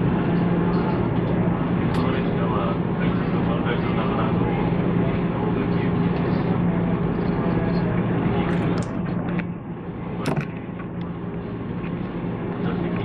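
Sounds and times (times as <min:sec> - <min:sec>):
sharp clicks and knocks: 0:10.2 - 0:10.9.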